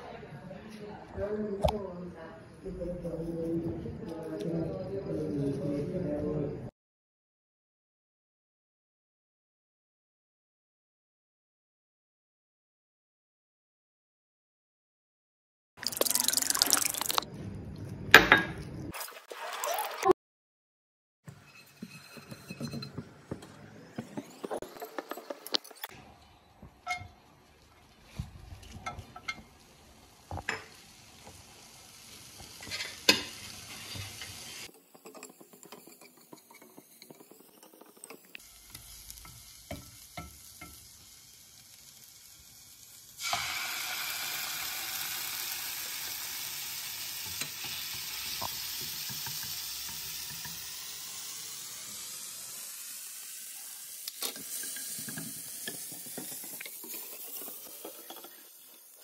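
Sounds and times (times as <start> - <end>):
hot oil sizzling: 15.8 - 17.3, 26.8 - 59.0
bowl and utensils knocking: 21.3 - 25.8.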